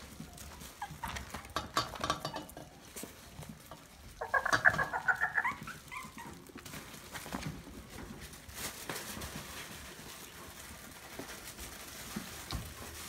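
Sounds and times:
puppy whining in high yips: 0.3s - 1.5s, 4.2s - 6.5s.

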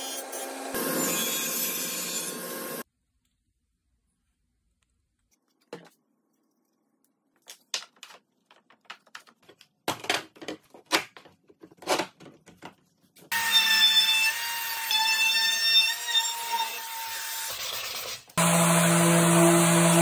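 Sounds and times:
clicks and knocks of wooden parts: 7.4s - 13.3s
trim router whining: 18.4s - 20.0s.

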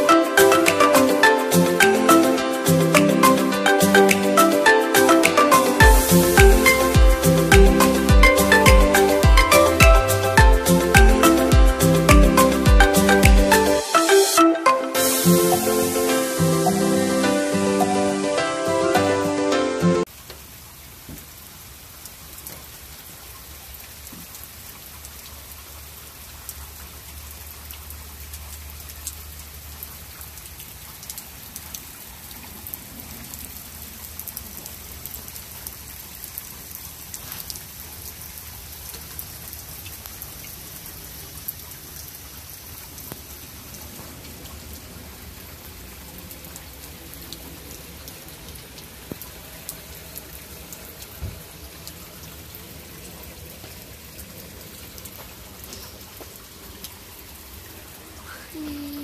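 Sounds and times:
steady rain falling: 0.0s - 59.0s
sharp raindrop hits: 5.2s - 13.6s.

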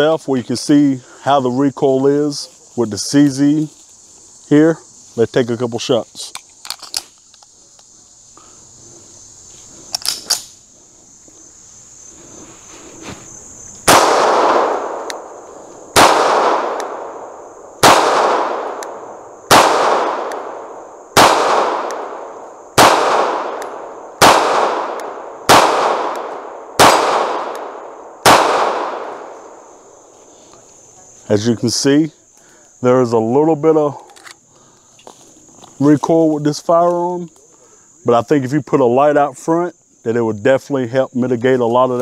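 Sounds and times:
gun handling clicks: 6.2s - 7.9s, 9.9s - 10.6s, 15.0s - 15.2s, 18.7s - 19.0s, 21.8s - 22.1s, 23.5s - 23.8s, 34.0s - 34.4s
pistol shots echoing: 13.8s - 29.4s.

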